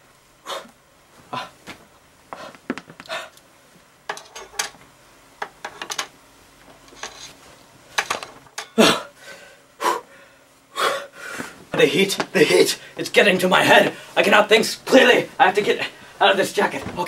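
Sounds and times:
person gasping breaths: 0.4 - 1.6, 2.3 - 3.4, 8.8 - 11.6.

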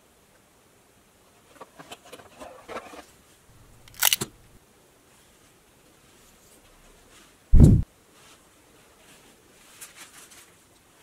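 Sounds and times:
plastic packaging crinkling: 3.8 - 4.3
loud plastic crackle with click: 3.8 - 4.4.

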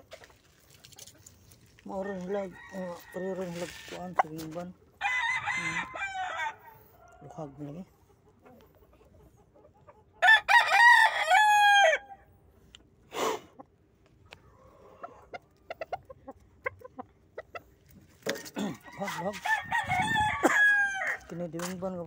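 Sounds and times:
rooster crowing: 2.0 - 4.0, 5.0 - 7.1, 10.2 - 12.2, 18.7 - 21.3.

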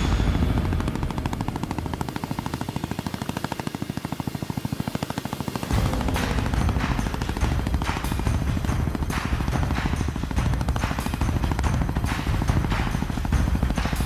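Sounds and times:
helicopter blades chopping: 0.0 - 14.0
deep rumble: 5.7 - 11.5.

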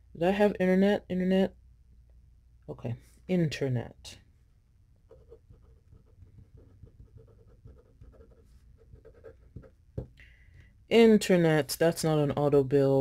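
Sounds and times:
pen scratching on paper: 5.1 - 9.8.

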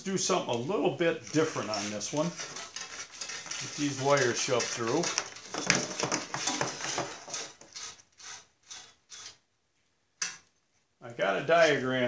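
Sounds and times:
wires scraping metal tube: 0.2 - 9.4.

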